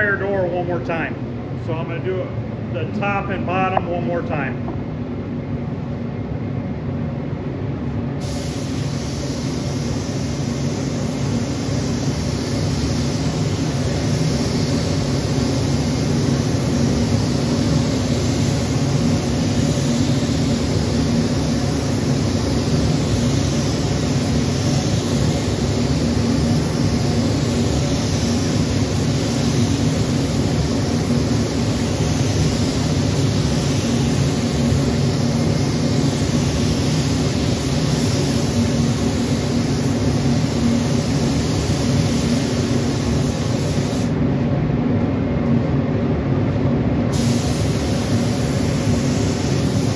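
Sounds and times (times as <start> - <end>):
spray gun hissing: 8.2 - 44.2, 47.1 - 49.9.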